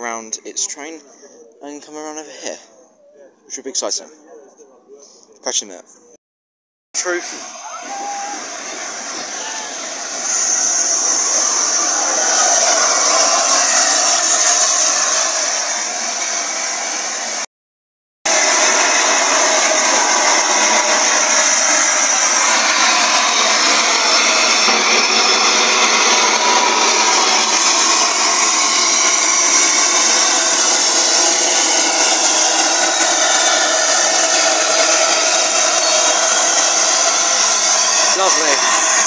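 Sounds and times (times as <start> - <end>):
steam locomotive hissing steam: 7.0 - 17.5, 18.3 - 39.0.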